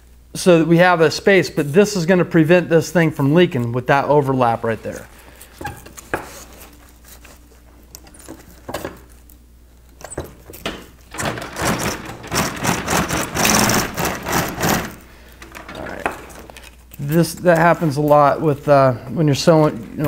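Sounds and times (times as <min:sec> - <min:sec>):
sewing machine stitching: 0:11.1 - 0:15.8.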